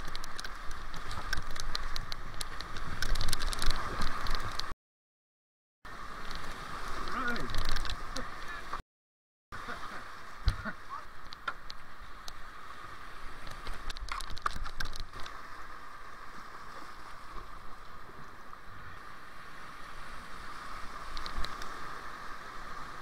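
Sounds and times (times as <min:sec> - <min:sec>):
sharp splashes and knocks: 0:00.0 - 0:04.7, 0:13.4 - 0:15.4.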